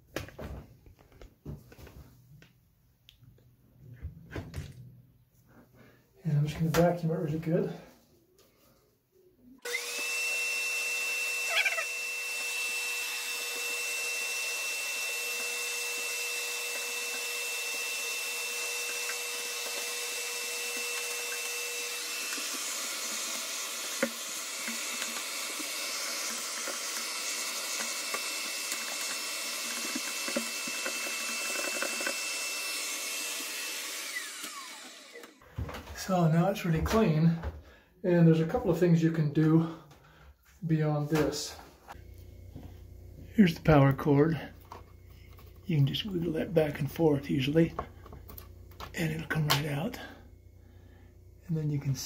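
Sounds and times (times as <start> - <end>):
vacuum cleaner running with high whine: 9.6 - 35.4.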